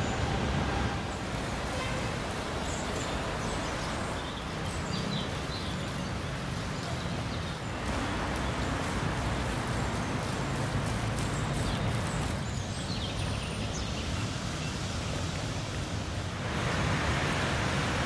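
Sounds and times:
outdoor ambient noise: 0.0s - 18.0s.

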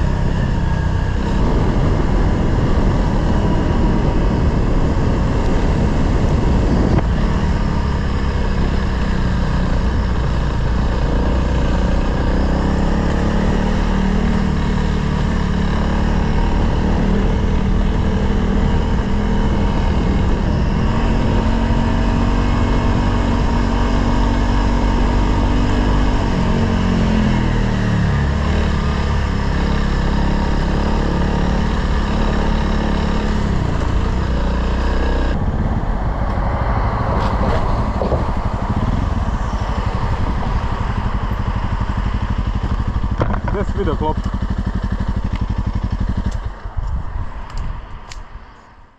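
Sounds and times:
motorcycle engine running: 0.0s - 48.9s.

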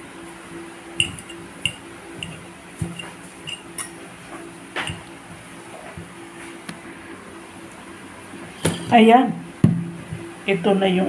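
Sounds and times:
metal fork clinking against bowl: 1.0s - 4.0s, 4.9s - 5.1s.

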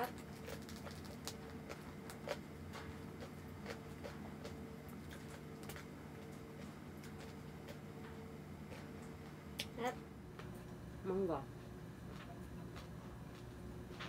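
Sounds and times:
fingers tearing crispy food: 0.0s - 7.8s
chewing crackles: 0.0s - 9.8s
air conditioner hum: 0.0s - 14.0s.

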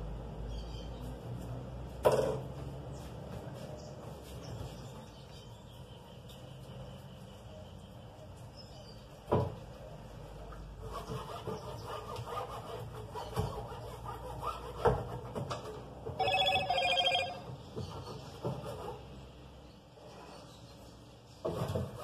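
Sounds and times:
bright pitched beep: 16.2s - 17.4s.

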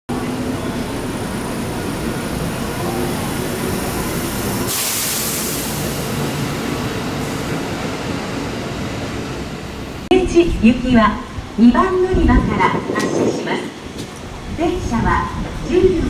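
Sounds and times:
train rumbling: 0.1s - 16.0s
loud hiss: 2.9s - 6.4s.

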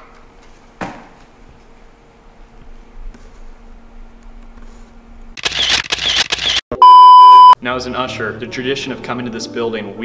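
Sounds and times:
sharp click: 5.4s - 6.6s.

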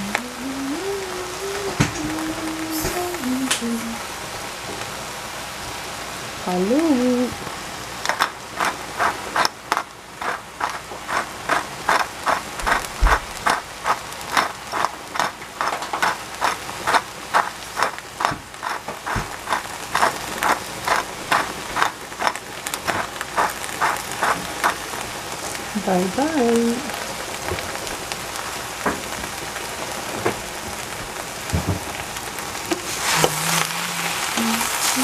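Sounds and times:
pepper grinder clicking and crunching: 8.0s - 24.9s.

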